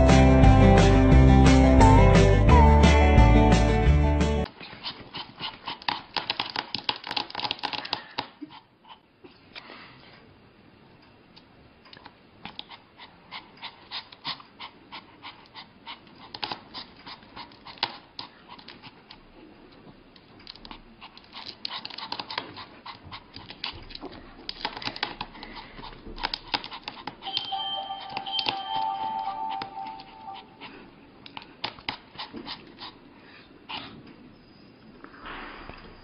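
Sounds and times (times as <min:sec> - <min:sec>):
dog panting: 0:04.5 - 0:09.1, 0:12.4 - 0:27.4, 0:29.9 - 0:34.2.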